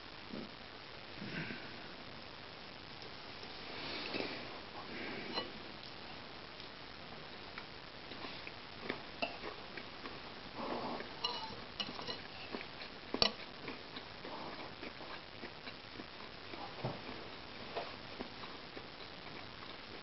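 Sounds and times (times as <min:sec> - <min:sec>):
spoon scraping ceramic bowl: 0:11.2 - 0:12.6.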